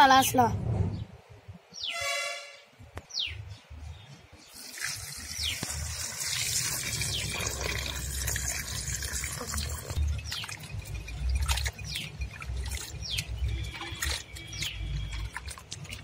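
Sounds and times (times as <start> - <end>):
bird calling and chirping: 1.7 - 2.2, 3.1 - 4.6
water pouring into a steel bowl: 4.5 - 16.0.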